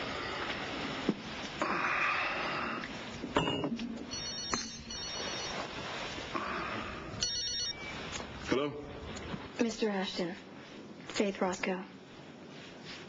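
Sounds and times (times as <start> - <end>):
telephone ringing: 3.4 - 5.7, 7.2 - 8.1.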